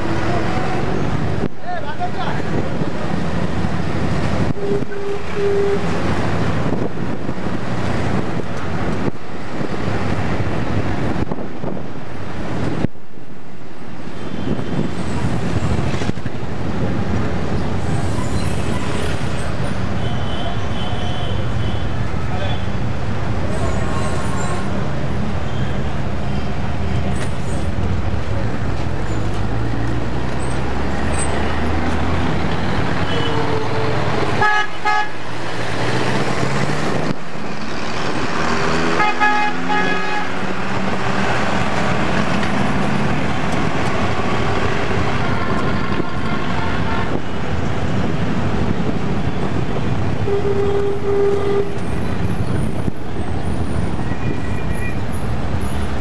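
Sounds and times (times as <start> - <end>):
engine and road rumble: 0.0 - 56.0
vehicle horns honking: 33.0 - 35.2, 38.9 - 40.4, 50.2 - 51.8.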